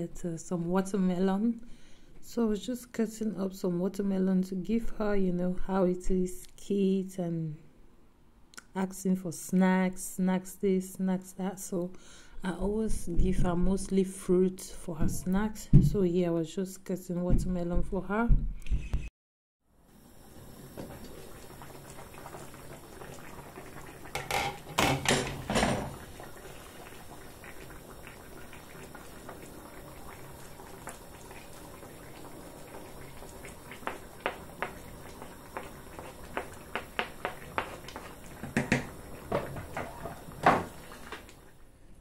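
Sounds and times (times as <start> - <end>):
soup boiling and bubbling: 19.8 - 41.8
wooden spoon knocking on pot: 36.3 - 40.7.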